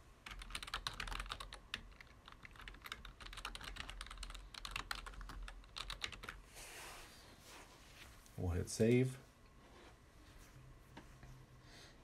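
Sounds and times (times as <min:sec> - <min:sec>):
computer keyboard typing: 0:00.2 - 0:06.4.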